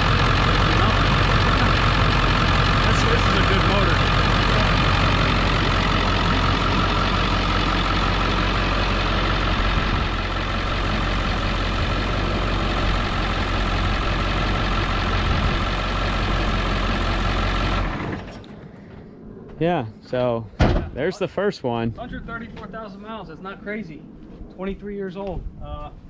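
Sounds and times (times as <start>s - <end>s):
diesel engine idling: 0.0s - 18.5s.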